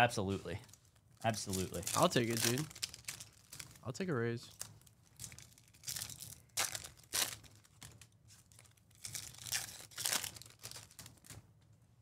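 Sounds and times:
foil wrapper ripping and crinkling: 0:00.7 - 0:03.8, 0:04.5 - 0:11.4.

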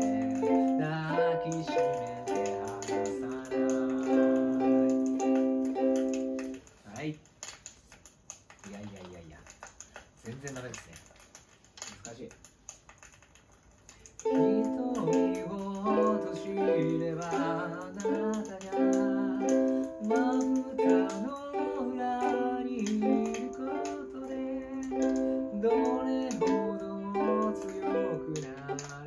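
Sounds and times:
ukulele strumming chords: 0:00.0 - 0:06.6, 0:14.2 - 0:29.0.

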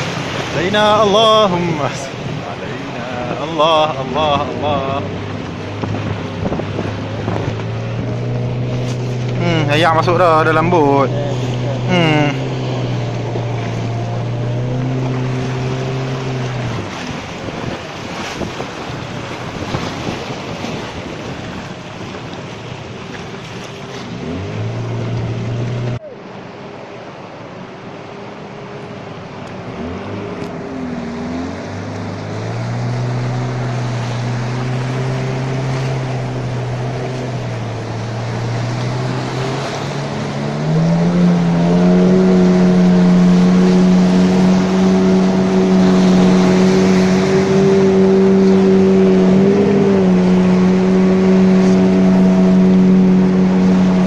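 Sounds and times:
churning water rushing: 0:00.0 - 0:54.0
outboard motor running: 0:00.0 - 0:54.0
wind on microphone: 0:05.0 - 0:10.0, 0:11.0 - 0:26.1.

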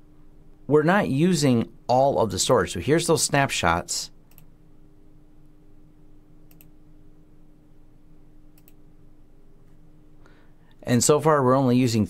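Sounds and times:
faint steady hum: 0:00.0 - 0:12.0
computer mouse clicks: 0:04.3 - 0:04.5, 0:06.4 - 0:06.8, 0:08.5 - 0:08.8.

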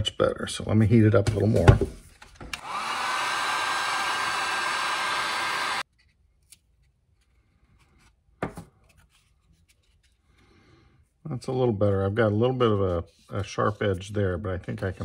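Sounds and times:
heat gun fan blowing hiss: 0:02.6 - 0:05.8.

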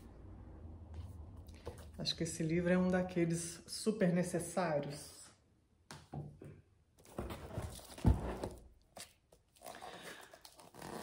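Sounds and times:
books rustling: 0:07.0 - 0:11.0.

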